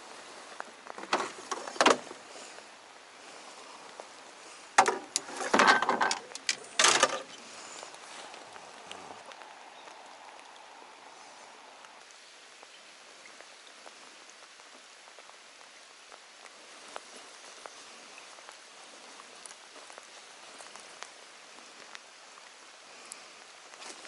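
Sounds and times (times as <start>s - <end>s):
rain falling on water: 0.0s - 24.0s
fishing gear clattering in boat: 4.8s - 7.4s.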